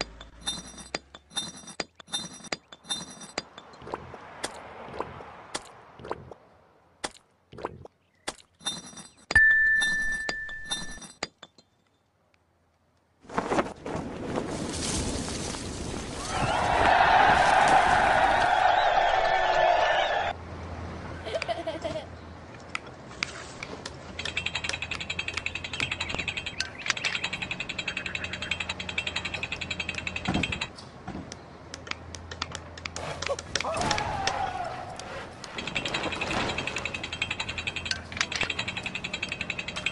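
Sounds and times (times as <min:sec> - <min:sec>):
sharp clinks: 0:00.0 - 0:03.7, 0:08.6 - 0:12.1
gear ratcheting clicks: 0:24.2 - 0:30.7, 0:35.4 - 0:39.9.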